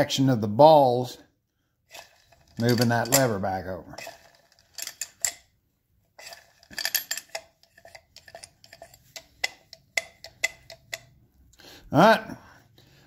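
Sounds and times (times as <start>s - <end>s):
metallic clicks of tractor governor: 7.1s - 11.1s.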